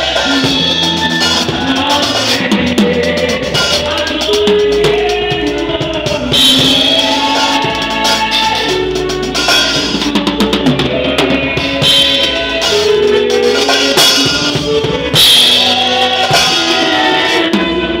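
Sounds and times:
drum kit playing: 0:00.0 - 0:18.0
held instrument notes: 0:00.1 - 0:18.0
cymbal crash: 0:09.3 - 0:10.1, 0:11.6 - 0:17.1.

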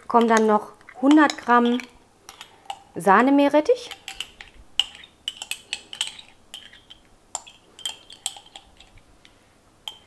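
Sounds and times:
kitchenware tapping steel bowl: 0:00.0 - 0:02.9.

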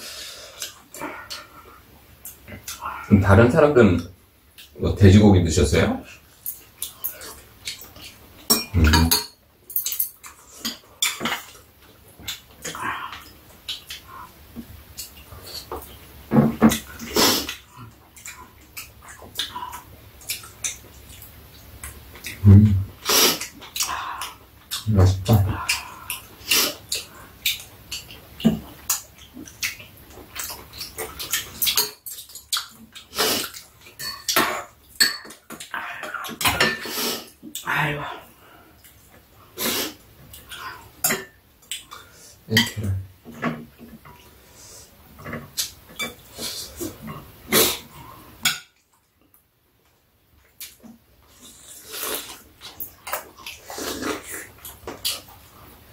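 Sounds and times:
wet eating noises: 0:00.4 - 0:03.2, 0:06.0 - 0:09.2, 0:09.8 - 0:49.4, 0:50.3 - 0:55.9
utensils clinking against bowls: 0:06.4 - 0:11.5, 0:33.4 - 0:37.0.

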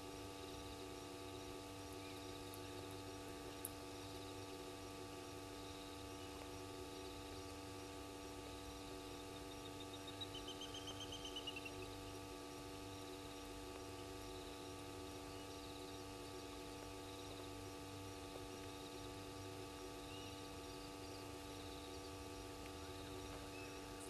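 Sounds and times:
steady hum: 0:00.0 - 0:24.0
insects chirping: 0:08.4 - 0:24.0.

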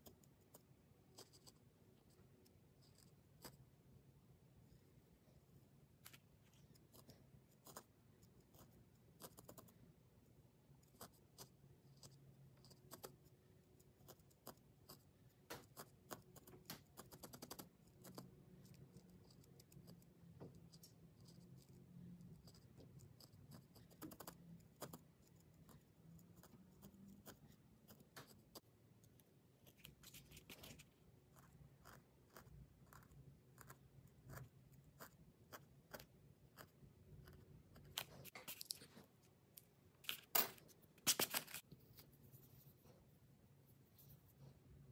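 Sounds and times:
felting needle poking wool: 0:10.6 - 0:39.0.

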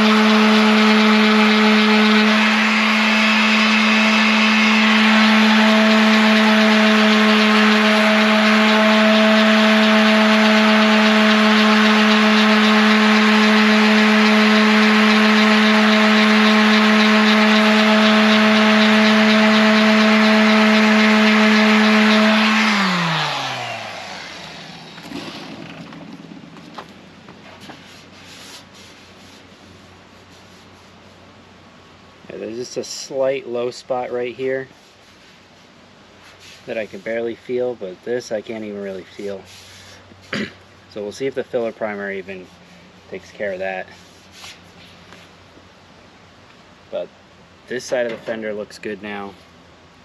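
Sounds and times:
orbital sander on sheet metal: 0:00.0 - 0:26.7, 0:36.2 - 0:40.0, 0:40.9 - 0:44.8
sander winding down: 0:00.0 - 0:26.9
hand rubbing on metal panel: 0:27.4 - 0:31.2, 0:34.5 - 0:37.7, 0:42.3 - 0:45.4.

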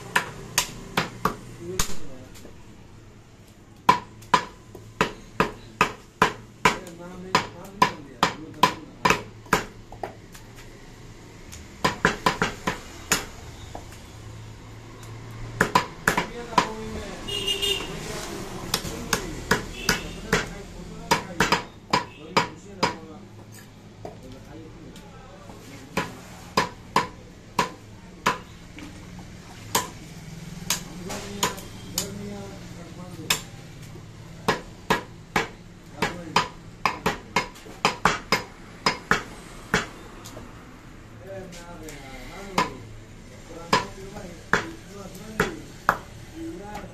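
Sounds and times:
knife chopping meat on wood: 0:00.0 - 0:02.0, 0:03.8 - 0:10.2, 0:11.8 - 0:13.4, 0:15.6 - 0:16.8, 0:18.7 - 0:23.1, 0:25.9 - 0:28.5, 0:29.6 - 0:30.0, 0:30.6 - 0:32.2, 0:33.2 - 0:33.5, 0:34.4 - 0:40.0, 0:42.4 - 0:42.8, 0:43.6 - 0:46.1.

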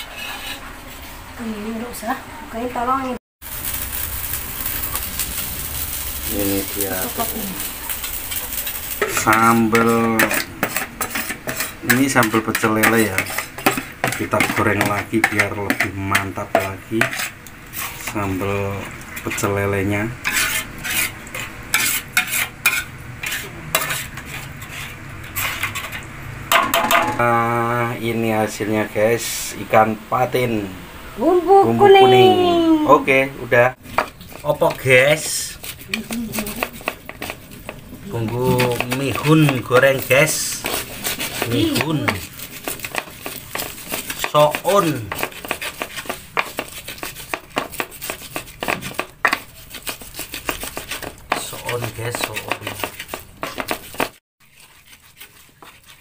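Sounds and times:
spatula scraping a metal wok: 0:00.0 - 0:01.1, 0:03.6 - 0:27.2, 0:33.8 - 0:56.0
light sizzle: 0:00.0 - 0:56.0
pestle grinding in a mortar: 0:07.7 - 0:26.0, 0:33.8 - 0:56.0.

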